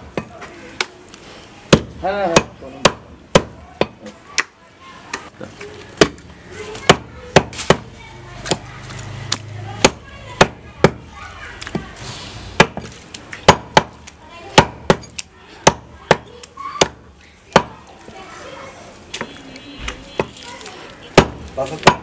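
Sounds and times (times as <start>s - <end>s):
cleaver chopping meat on wood: 1.7s - 4.5s, 13.5s - 14.0s, 14.6s - 16.2s, 16.8s - 17.8s, 21.2s - 22.0s.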